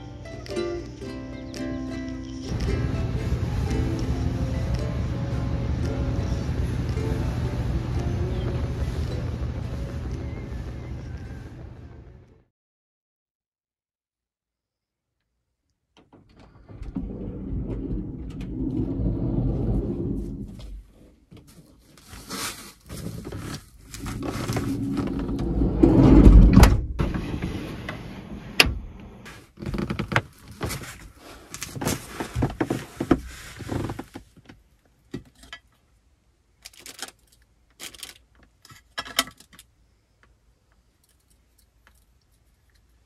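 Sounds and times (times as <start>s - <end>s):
rustling and shuffling: 16.4s - 26.4s, 29.2s - 35.4s
small clicks and clatters: 36.6s - 43.0s.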